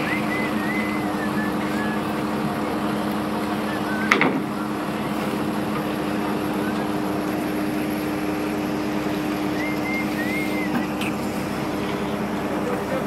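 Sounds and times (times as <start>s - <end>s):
faint high whistle: 0.0s - 2.0s, 3.7s - 4.8s, 9.6s - 10.9s
machinery hum: 0.0s - 13.0s.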